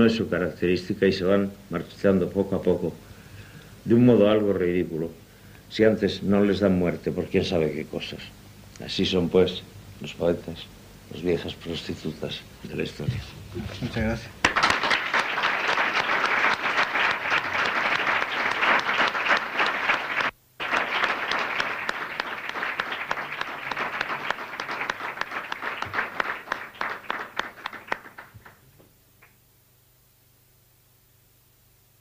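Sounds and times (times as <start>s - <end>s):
audience applauding: 14.4s - 28.6s.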